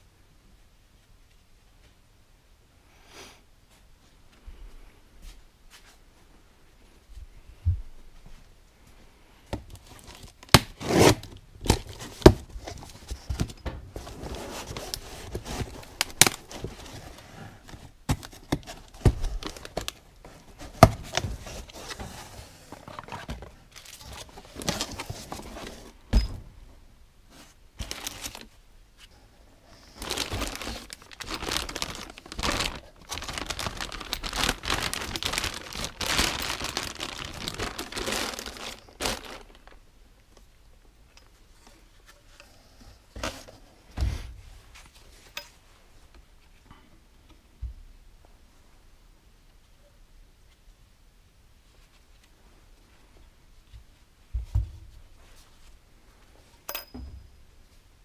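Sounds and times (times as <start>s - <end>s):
crinkling and rustling: 6.9s - 26.5s, 27.3s - 47.4s.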